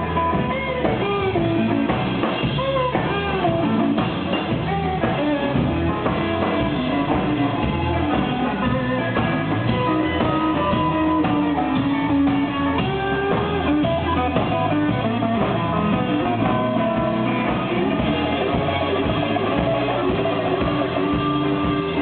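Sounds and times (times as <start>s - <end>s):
drum kit: 0.0s - 22.0s
electric guitar: 0.0s - 22.0s.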